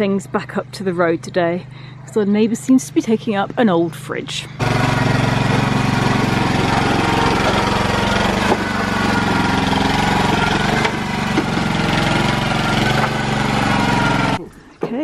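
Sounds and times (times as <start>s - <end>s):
small engine running loudly: 4.3s - 14.4s.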